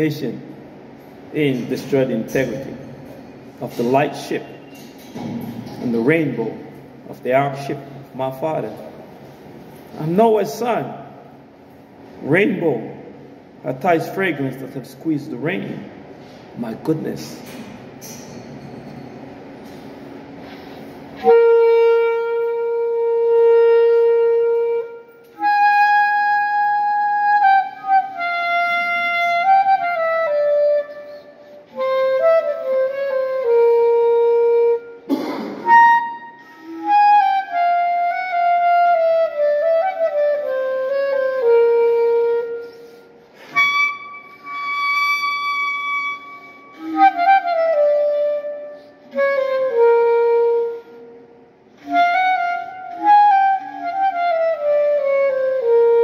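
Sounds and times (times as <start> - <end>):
solo clarinet melody: 21.2 - 56.0.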